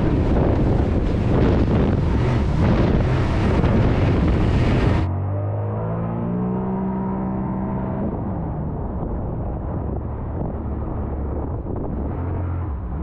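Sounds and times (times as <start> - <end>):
jet ski engine running: 0.0 - 5.1
wind noise on microphone: 0.0 - 5.1, 7.2 - 13.0.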